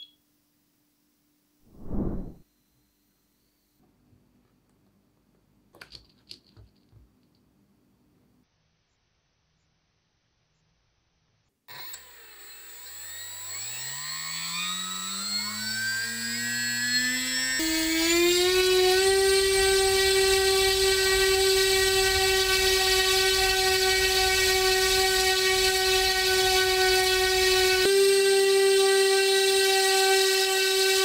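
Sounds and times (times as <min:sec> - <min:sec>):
brushless motor propeller whine: 0:14.6 - 0:31.0.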